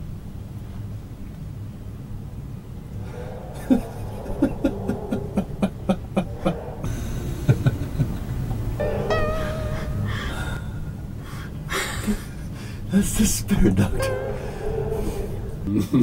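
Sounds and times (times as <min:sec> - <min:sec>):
low steady hum: 0:00.0 - 0:16.0
man laughing heartily: 0:03.6 - 0:08.8, 0:09.4 - 0:12.8.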